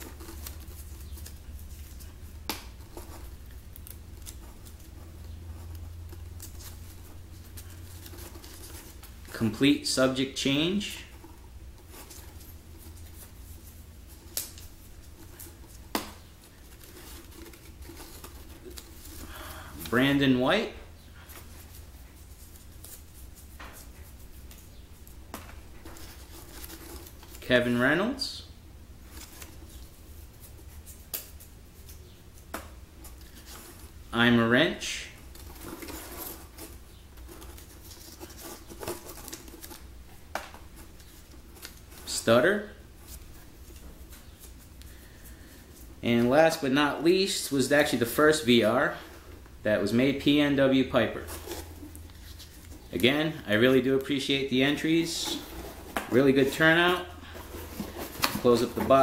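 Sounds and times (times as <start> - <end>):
paper rustling and crinkling: 0.0 - 20.6, 21.2 - 28.2, 29.0 - 34.0, 35.0 - 59.0
low steady hum: 0.0 - 59.0.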